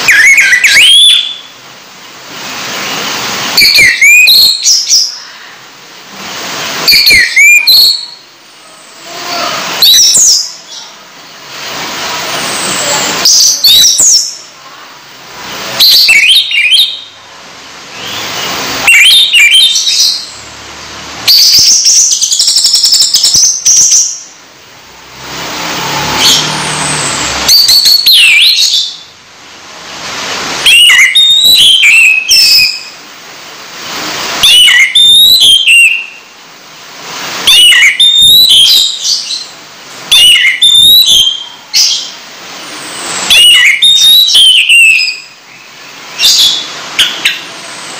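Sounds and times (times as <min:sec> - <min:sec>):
songbird singing: 0:00.0 - 0:05.7, 0:06.5 - 0:11.6, 0:12.3 - 0:15.0, 0:15.6 - 0:17.2, 0:17.9 - 0:24.4, 0:25.1 - 0:29.2, 0:30.6 - 0:33.0, 0:34.4 - 0:36.3, 0:37.5 - 0:42.3, 0:43.0 - 0:47.6.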